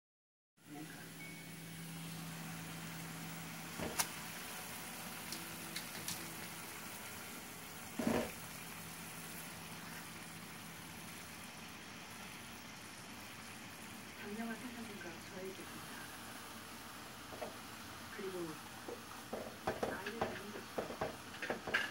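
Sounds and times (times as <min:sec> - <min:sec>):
water boiling in a pot: 0:00.6 - 0:21.9.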